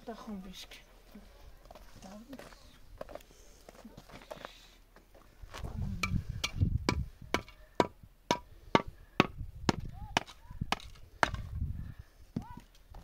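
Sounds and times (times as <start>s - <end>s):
hand tool striking hard ground: 6.0s - 11.5s.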